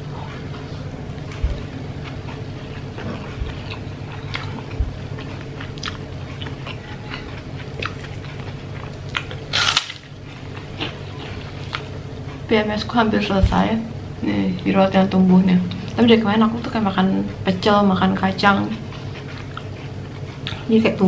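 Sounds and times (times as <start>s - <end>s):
low hum: 0.0s - 21.0s
close-up chewing: 0.1s - 12.5s, 18.7s - 20.7s
crunch of biting a cracker: 9.0s - 10.1s.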